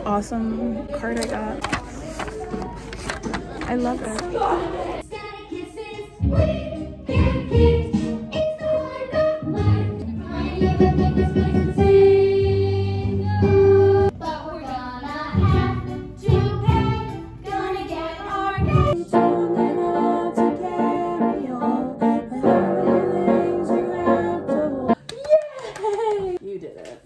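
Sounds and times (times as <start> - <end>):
voices singing: 0.0 - 25.0.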